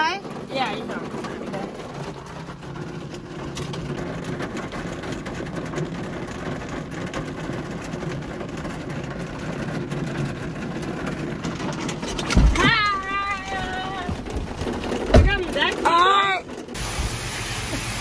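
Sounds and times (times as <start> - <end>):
car engine idling: 12.7 - 18.0
heavy rain hissing: 16.8 - 18.0.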